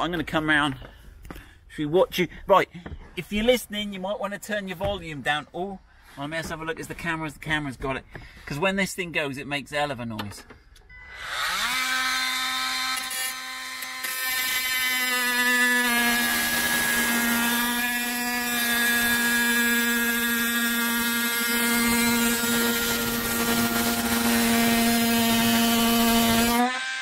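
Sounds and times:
oscillating multi-tool buzzing: 11.0 - 27.0.

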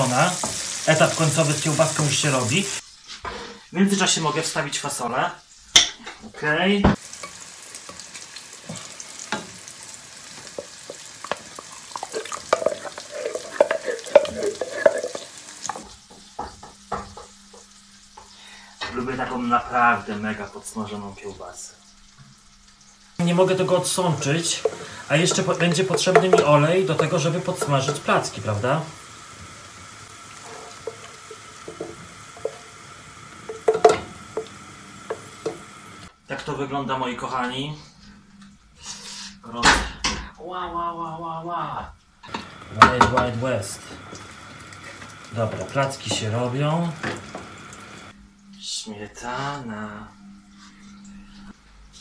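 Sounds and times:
sausage sizzling in oil: 0.0 - 4.1, 7.0 - 18.8, 19.8 - 36.1, 42.2 - 48.2
utensil tapping a pan: 10.4 - 17.3, 23.3 - 28.3, 30.3 - 32.8, 33.4 - 35.7.

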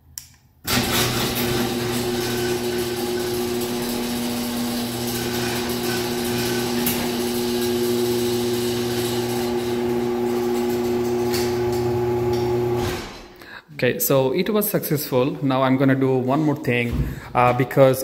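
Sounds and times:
garage door opener running: 0.6 - 13.3.

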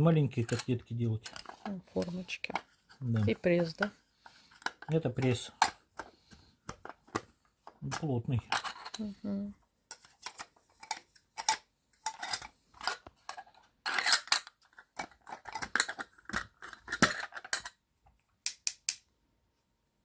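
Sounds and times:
plastic scraping: 0.3 - 7.3.

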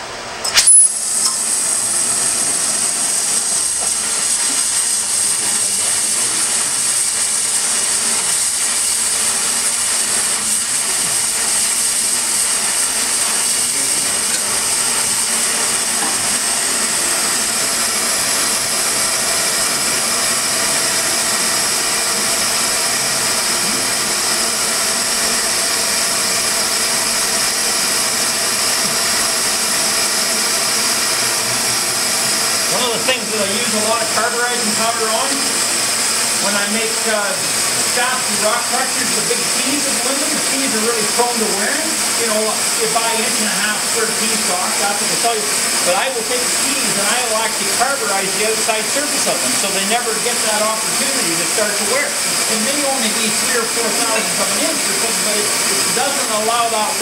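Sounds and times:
flame igniting pop: 0.4 - 1.4
torch flame hissing: 0.4 - 57.0.

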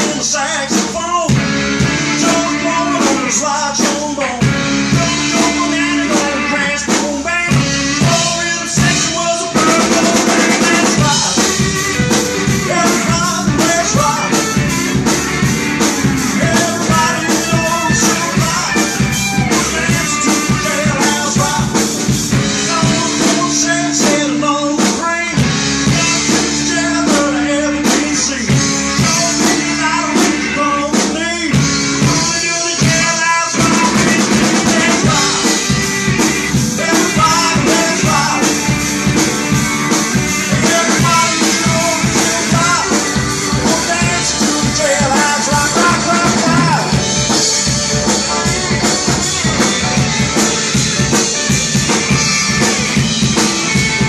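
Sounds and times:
acoustic guitar: 0.0 - 54.0
bass guitar: 0.0 - 54.0
drum kit: 0.0 - 54.0
electric guitars: 0.0 - 54.0.

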